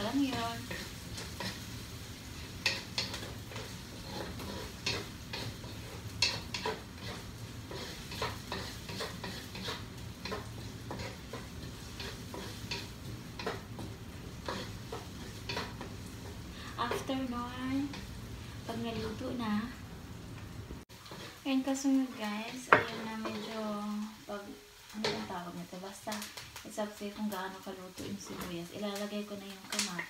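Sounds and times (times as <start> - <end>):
spatula scraping a wok: 0.0 - 19.4, 20.9 - 25.3
onions sizzling in oil: 0.0 - 30.0.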